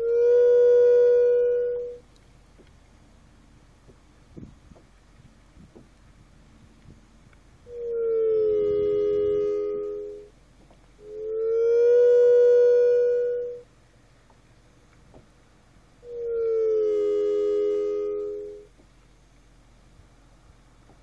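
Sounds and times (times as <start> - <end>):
synthesized electronic tones: 7.7 - 10.3, 16.1 - 18.7.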